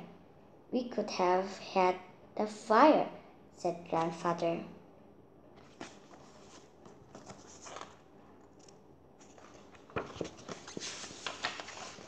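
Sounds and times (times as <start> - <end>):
book pages rustling: 5.6 - 12.0.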